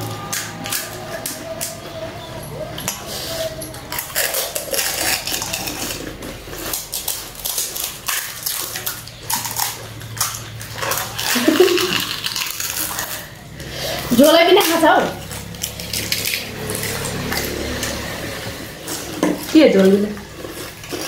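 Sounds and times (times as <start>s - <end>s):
people crunching food: 0.0s - 21.0s
crisp shells cracking: 3.7s - 18.2s, 18.8s - 21.0s.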